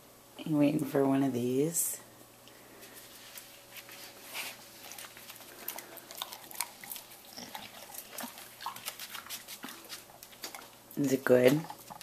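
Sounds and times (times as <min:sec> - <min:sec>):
dog chewing a hard biscuit: 0:04.8 - 0:10.8.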